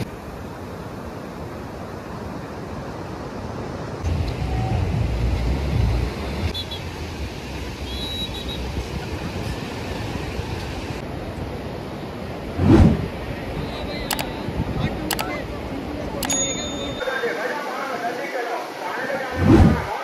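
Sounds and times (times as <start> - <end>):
surf on sandy beach: 0.0 - 20.0
wind rumble on microphone: 1.2 - 16.0, 19.3 - 19.9.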